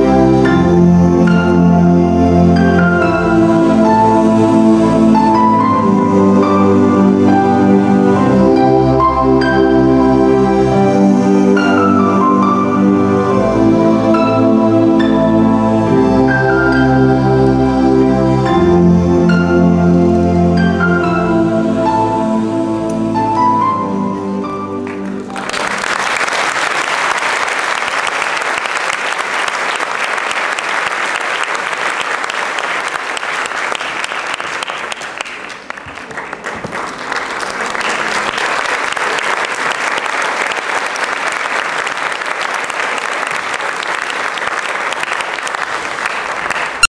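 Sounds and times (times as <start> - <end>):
audience applauding: 24.8 - 46.9.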